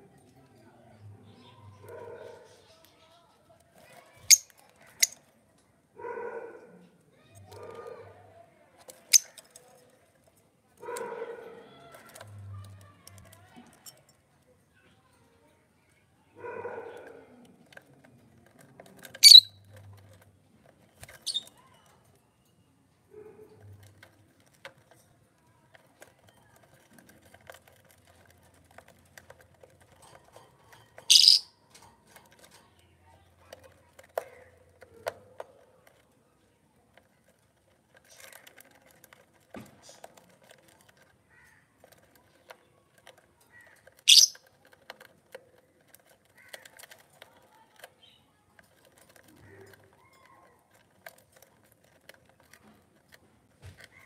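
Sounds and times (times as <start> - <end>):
birds pecking wood: 1.1 - 15.3, 16.3 - 54.0
bird high-pitched shrieks: 31.1 - 31.5, 44.1 - 44.4.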